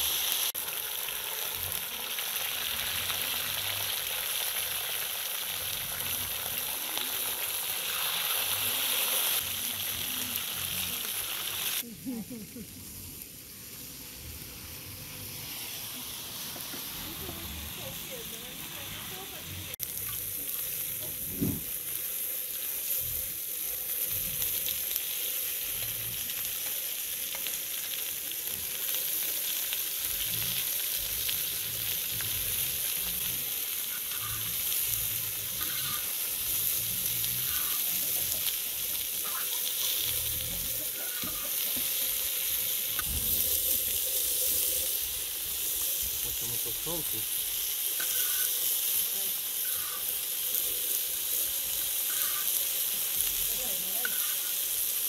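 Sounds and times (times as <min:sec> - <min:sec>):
meat and vegetables sizzling in oil: 0:00.0 - 0:55.0.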